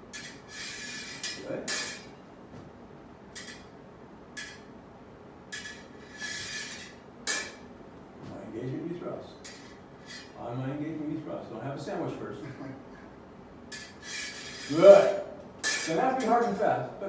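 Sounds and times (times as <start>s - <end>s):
sword blades scraping: 0.1s - 2.2s, 3.4s - 3.7s, 5.5s - 7.6s, 9.4s - 10.4s, 13.7s - 16.6s
sword blades clinking: 0.2s - 2.1s, 5.6s - 7.6s, 13.8s - 16.6s.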